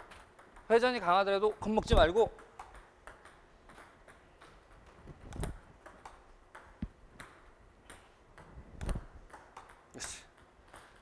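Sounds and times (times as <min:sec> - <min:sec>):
table tennis ball clicks: 0:00.0 - 0:11.0.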